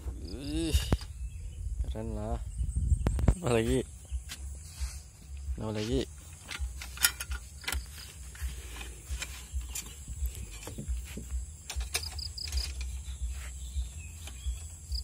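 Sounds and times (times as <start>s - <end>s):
low rumble on microphone: 0.0s - 6.8s.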